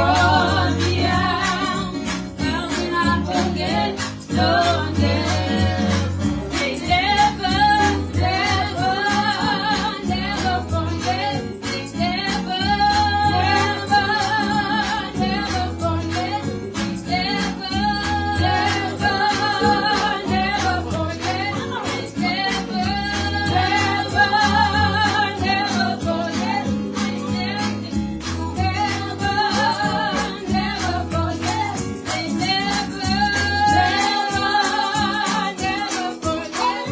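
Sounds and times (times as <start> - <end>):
instrumental backing with beat: 0.0 - 36.9
women singing gospel song: 0.0 - 36.9.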